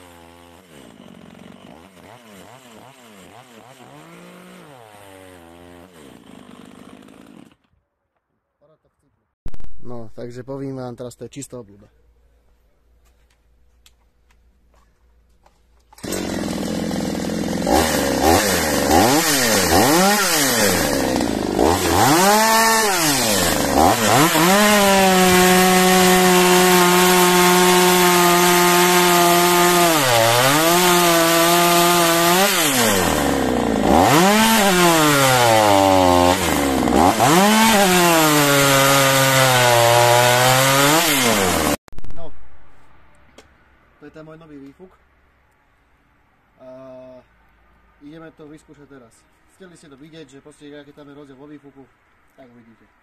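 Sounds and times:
chainsaw revving and cutting log: 0.0s - 7.7s, 16.0s - 41.8s.

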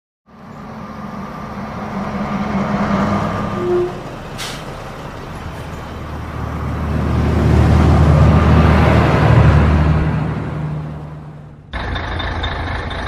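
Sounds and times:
bus engine running: 0.3s - 13.0s
brake squeal: 1.3s - 6.0s, 11.7s - 13.0s
air brakes hiss: 4.3s - 4.8s.

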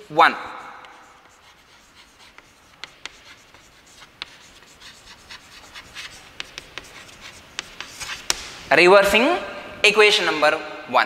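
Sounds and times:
chalk scratching on chalkboard: 0.0s - 8.7s
chalk tapping on board: 0.6s - 8.6s.

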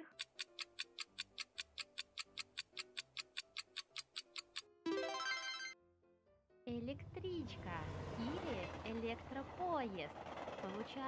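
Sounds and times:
clock-like ticking timer: 0.0s - 4.7s
soft background music: 0.0s - 10.2s.

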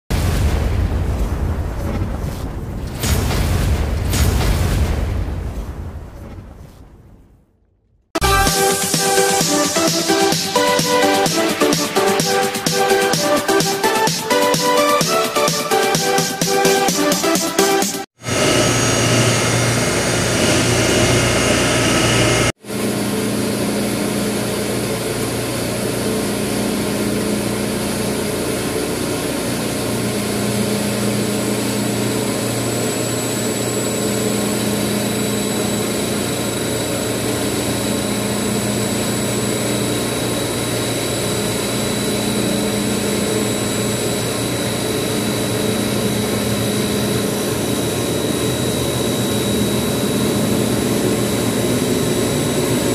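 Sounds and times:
thin high whine: 18.2s - 29.1s
chiller machinery hum: 18.2s - 52.9s.

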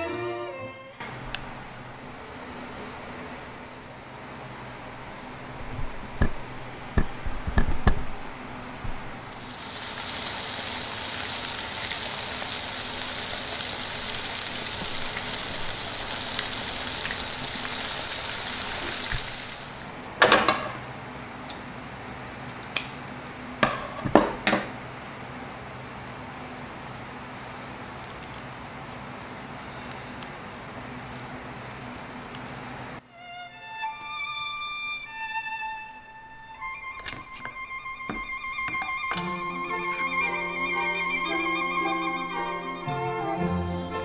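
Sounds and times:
fish sizzling in hot oil: 9.2s - 19.9s.

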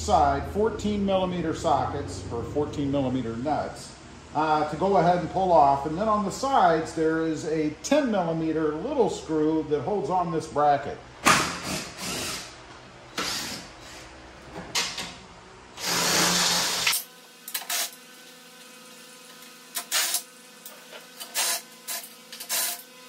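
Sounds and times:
cordless drill running: 11.4s - 14.0s, 15.8s - 18.0s, 21.1s - 23.0s.

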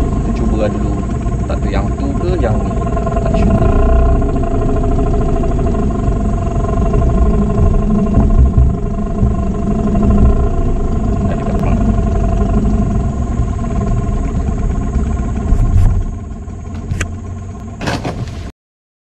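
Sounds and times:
outboard motor running: 0.0s - 18.5s.

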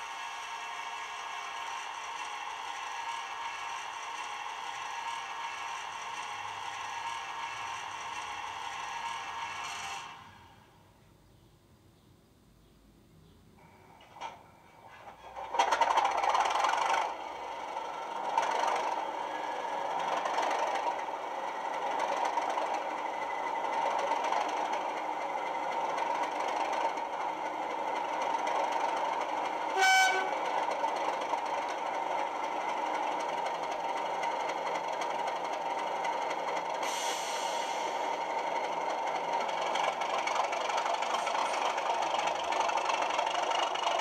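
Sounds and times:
locomotive horn blast: 29.7s - 30.6s.

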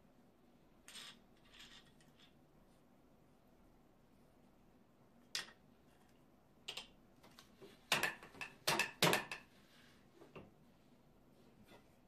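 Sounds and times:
wooden loom clacks: 7.9s - 9.5s.

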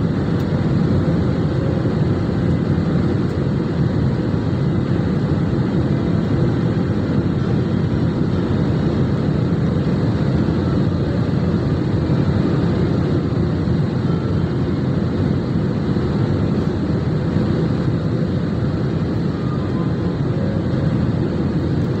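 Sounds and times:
airliner cabin jet engine noise: 0.0s - 22.0s.

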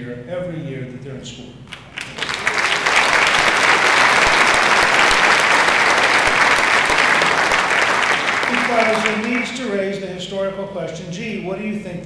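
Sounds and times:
audience applauding: 1.7s - 9.7s.

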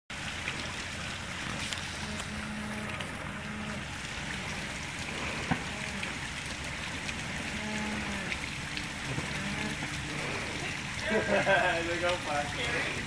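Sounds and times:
engine low rumble: 0.1s - 13.0s
rushing water: 0.1s - 13.0s.

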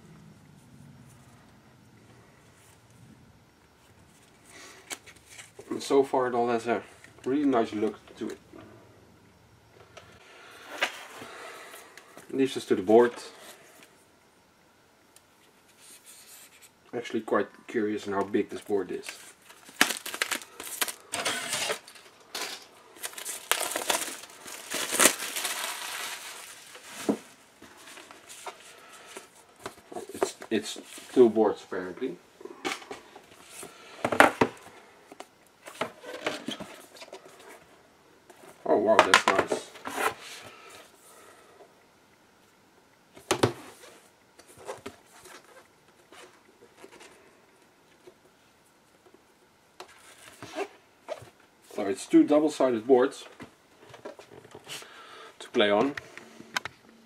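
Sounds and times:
packaging rustling and crinkling: 18.6s - 31.2s.

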